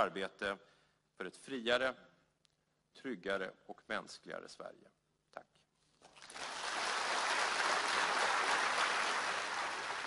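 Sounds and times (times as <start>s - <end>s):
audience applauding: 6.2s - 10.0s.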